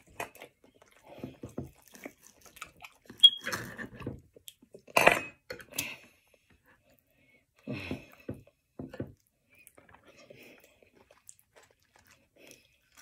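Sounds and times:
chewing food: 0.0 - 4.9, 8.1 - 13.0.

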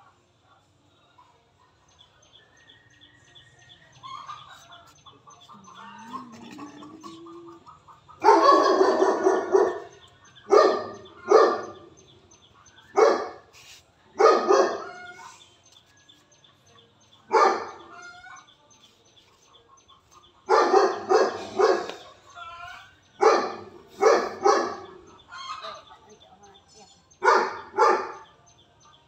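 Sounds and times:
dog barking: 8.1 - 12.0, 12.9 - 13.5, 14.2 - 15.3, 17.3 - 18.1, 20.5 - 22.2, 23.2 - 25.8, 27.2 - 28.4.

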